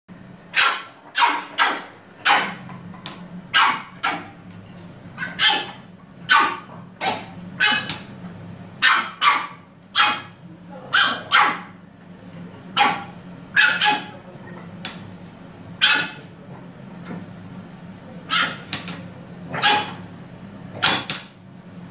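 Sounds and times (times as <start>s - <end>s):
puppy yapping: 0.5s - 2.6s, 3.6s - 4.4s, 5.2s - 8.0s, 8.8s - 11.8s, 12.8s - 14.2s, 15.8s - 16.3s, 18.3s - 18.7s, 19.5s - 20.0s.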